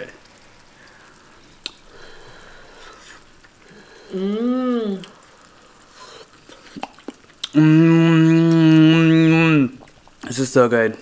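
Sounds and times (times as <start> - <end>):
person humming mmm: 3.7 - 5.3, 6.0 - 9.7.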